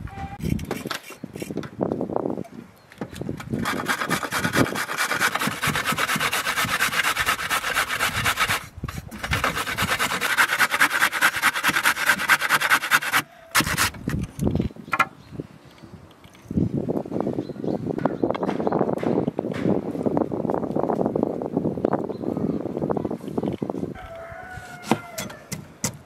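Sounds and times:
carrot grated on metal grater: 0:03.6 - 0:08.6, 0:09.2 - 0:13.8.

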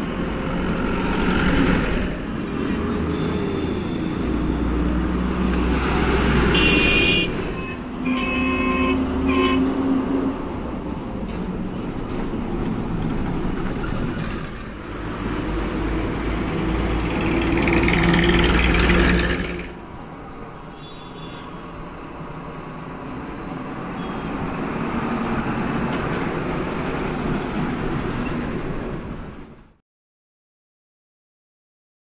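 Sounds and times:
diesel trucks rumbling past: 0:00.0 - 0:20.0
vehicle horns honking: 0:06.5 - 0:09.8.

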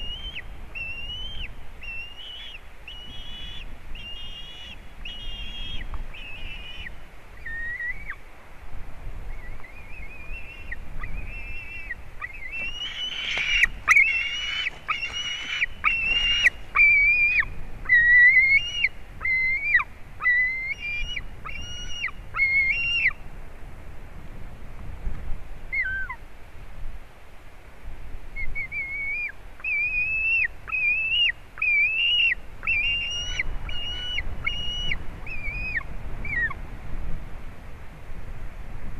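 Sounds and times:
eagles piping calls: 0:09.4 - 0:23.2, 0:28.6 - 0:36.6.

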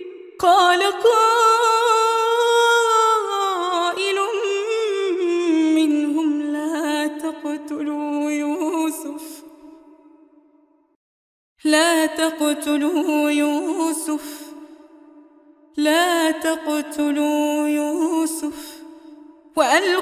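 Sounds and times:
woman chanting: 0:00.0 - 0:09.7, 0:11.6 - 0:14.9, 0:15.8 - 0:20.0.

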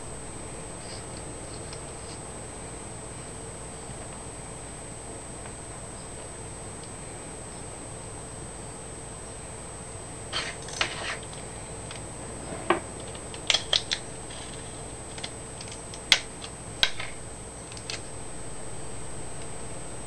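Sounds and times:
sticky tape clicks and crinkles: 0:13.0 - 0:18.1.

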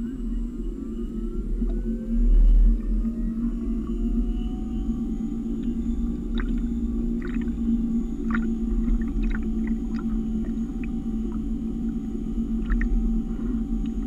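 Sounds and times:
low hum of rotor and motor: 0:00.0 - 0:14.0
water splashing against hulls: 0:06.3 - 0:07.6, 0:08.2 - 0:13.0.

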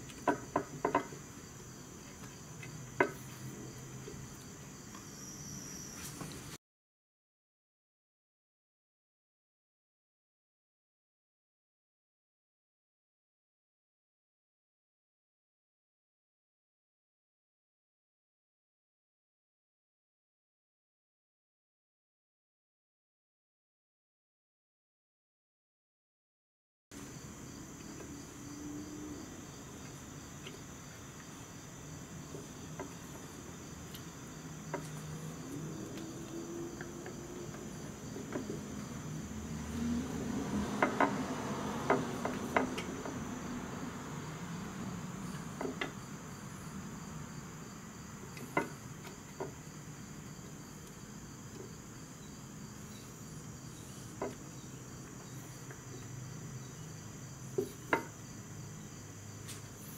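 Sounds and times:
crickets chirping: 0:00.0 - 0:06.6, 0:26.9 - 0:59.9.

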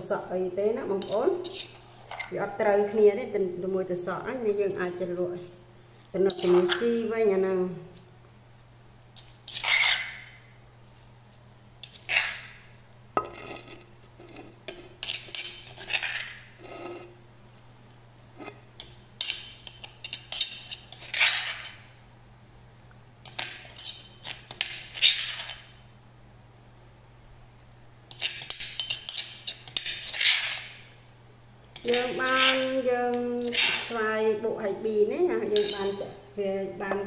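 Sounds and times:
spoon scraping stone mortar: 0:01.0 - 0:02.4, 0:09.2 - 0:10.4, 0:11.8 - 0:12.6, 0:13.2 - 0:17.2, 0:18.4 - 0:21.9, 0:23.2 - 0:25.7, 0:28.1 - 0:30.9, 0:31.8 - 0:32.8, 0:33.4 - 0:34.0, 0:35.5 - 0:36.1.

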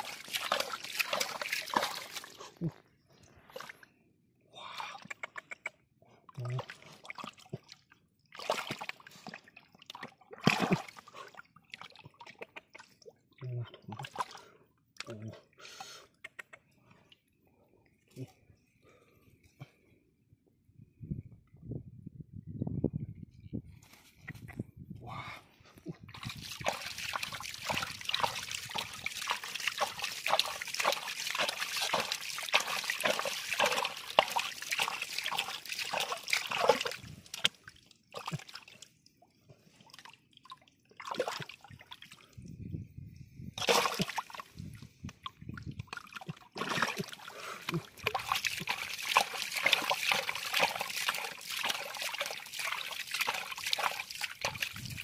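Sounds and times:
water splashing and sloshing: 0:00.0 - 0:03.9, 0:06.3 - 0:14.6, 0:26.0 - 0:42.5, 0:43.5 - 0:55.0.

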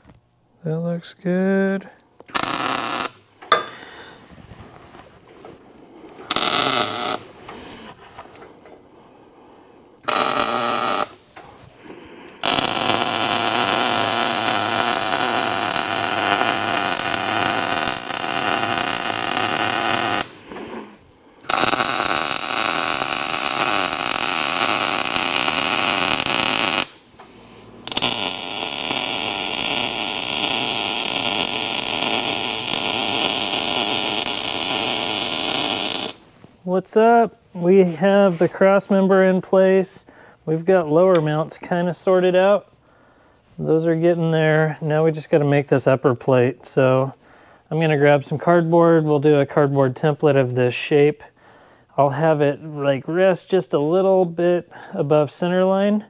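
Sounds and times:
welder welding steel: 0:02.3 - 0:03.7, 0:06.2 - 0:07.3, 0:10.0 - 0:11.2, 0:11.9 - 0:36.3.

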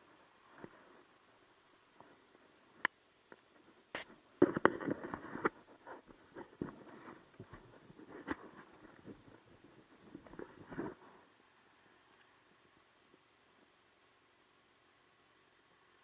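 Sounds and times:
light ticks and rubbing: 0:00.0 - 0:13.2
knocks and scrapes: 0:04.0 - 0:09.4, 0:10.0 - 0:11.2.

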